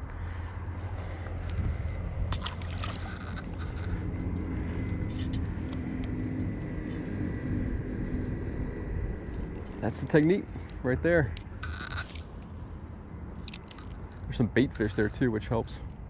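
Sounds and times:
steady low rumble: 0.0 - 16.0
fish splashing into river: 2.3 - 3.4.

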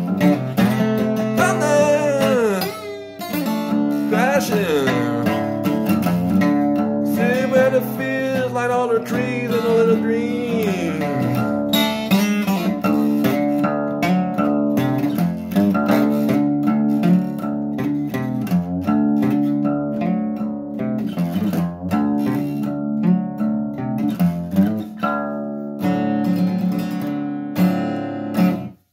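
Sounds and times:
acoustic guitar strumming: 0.0 - 28.9
person singing held note: 1.4 - 2.9, 4.1 - 5.4.

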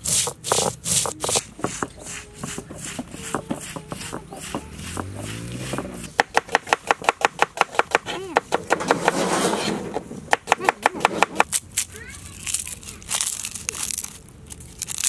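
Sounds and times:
stone roller knocking on stone: 0.2 - 11.4.

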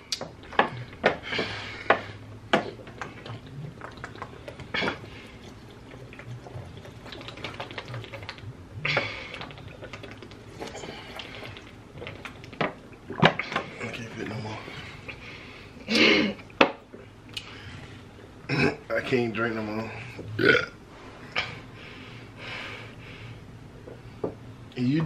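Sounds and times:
water being gulped: 0.0 - 15.2
plastic jugs crackling: 0.0 - 15.4.

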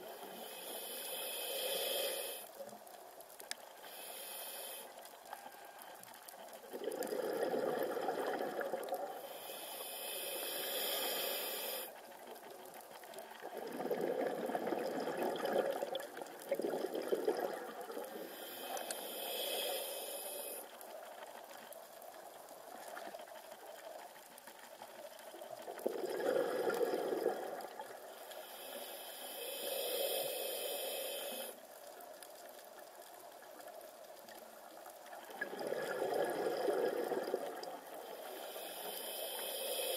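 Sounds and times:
regulator hissing inhale: 0.0 - 2.8, 3.7 - 8.0, 9.1 - 12.9, 18.0 - 21.0, 28.1 - 31.7, 37.0 - 39.9
exhaled air bubbling underwater: 6.6 - 24.0, 24.8 - 31.9, 33.4 - 39.9.

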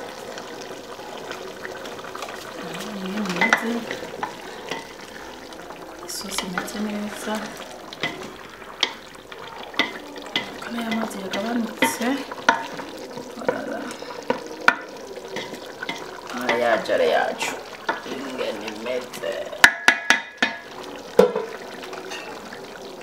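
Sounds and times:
stew bubbling: 0.0 - 23.0
spoon knocking against pot: 9.8 - 12.8, 19.6 - 22.4.

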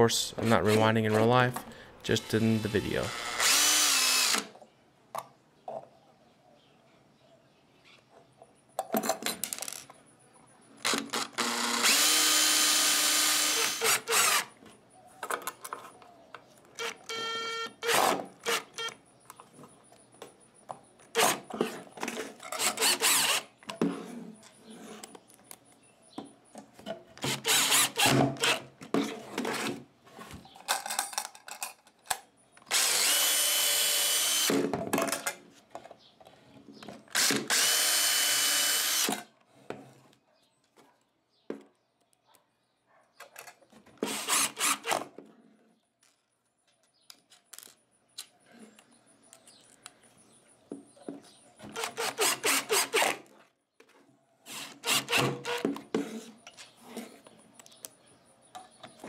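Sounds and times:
cordless drill motor whine: 2.2 - 4.5, 10.8 - 14.5, 16.8 - 19.0, 22.6 - 23.5, 32.7 - 34.5, 37.2 - 39.2.

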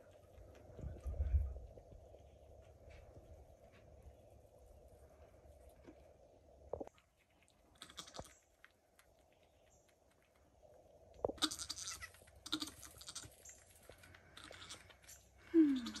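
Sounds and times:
goat licking: 13.9 - 15.1
low goat bleats: 15.6 - 16.0.

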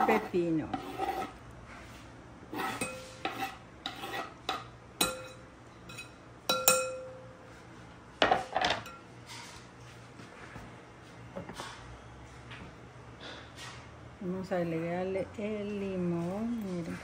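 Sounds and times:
knife on wooden cutting board: 2.5 - 4.6
knife clinking on glass bowl: 2.7 - 3.5, 4.5 - 7.2.

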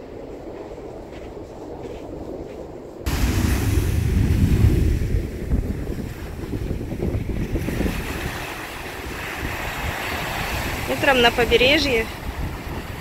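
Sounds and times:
wind buffeting the microphone: 0.0 - 13.0
surf breaking on a beach: 3.0 - 13.0.

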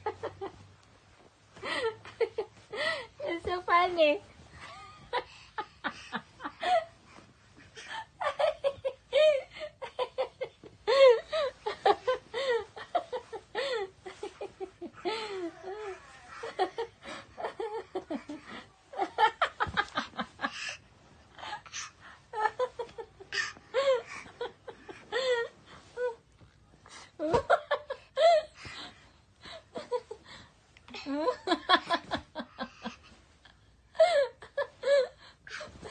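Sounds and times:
person giggling and chuckling: 7.7 - 20.8.

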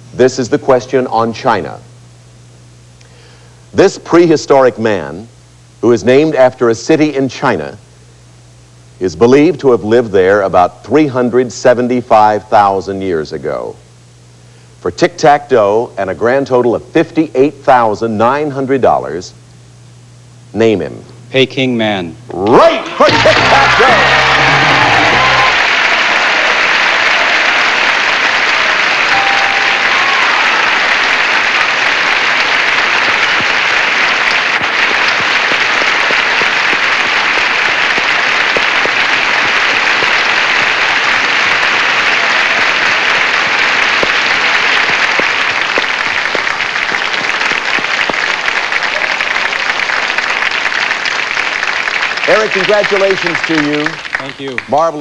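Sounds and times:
audience applauding: 22.5 - 55.0.

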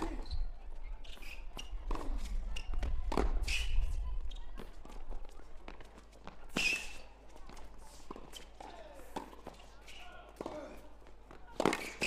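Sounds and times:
shoe squeaks on court: 0.0 - 2.8, 3.4 - 4.7, 6.5 - 7.1, 8.2 - 8.6
tennis ball bouncing: 1.6 - 3.4, 11.3 - 12.0
racket hitting tennis ball: 11.5 - 12.0.

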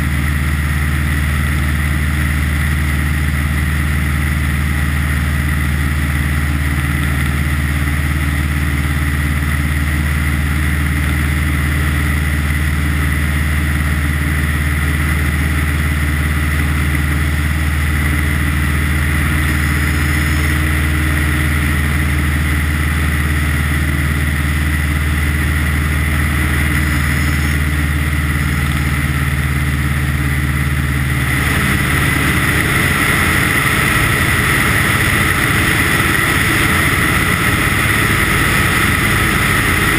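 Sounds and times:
propeller plane engine droning: 0.0 - 39.9
rushing wind noise: 31.0 - 39.9.

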